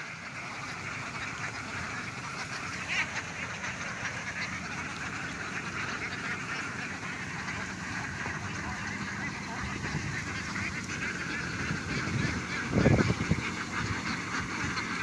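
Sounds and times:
ducks quacking: 0:00.0 - 0:15.0.

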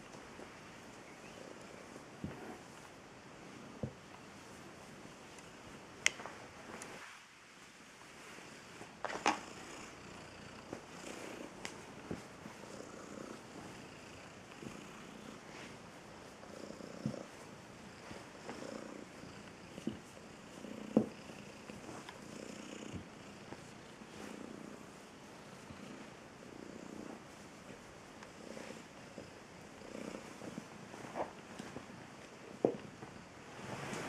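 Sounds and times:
cat purring: 0:08.2 - 0:32.8.

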